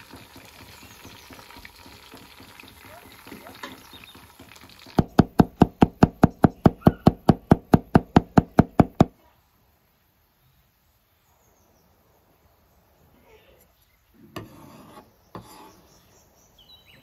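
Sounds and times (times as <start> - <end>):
knife chopping on wooden board: 5.0 - 9.1.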